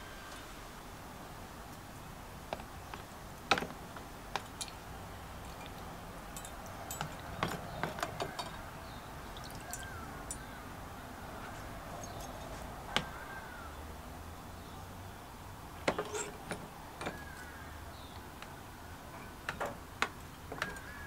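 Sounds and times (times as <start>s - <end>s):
metal parts clinking on metal rod: 5.5s - 8.6s, 15.9s - 17.2s.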